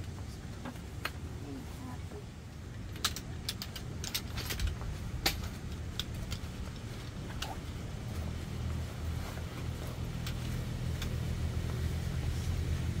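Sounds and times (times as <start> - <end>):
steady low rumble: 0.0 - 13.0
camp chair poles clicking: 2.4 - 12.7.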